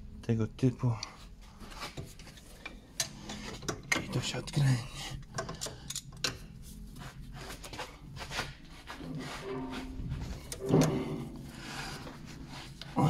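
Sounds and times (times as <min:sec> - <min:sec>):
metallic thump: 0:09.5 - 0:11.4.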